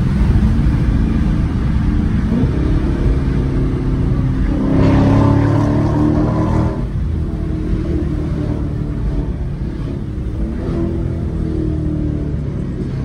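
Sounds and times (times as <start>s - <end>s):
car exhaust at speed from cabin: 2.1s - 13.0s.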